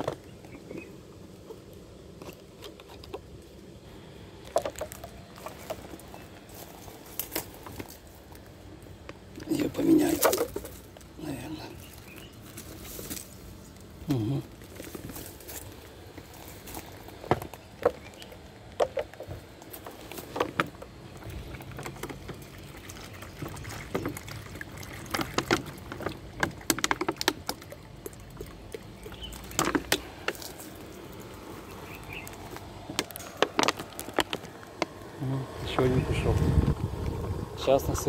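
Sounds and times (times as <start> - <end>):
footsteps on dry leaves: 11.8 - 13.7, 14.6 - 17.3
water pouring into a bowl: 22.4 - 26.4
plastic bottle clicks and crackles: 25.1 - 30.5, 32.2 - 35.0.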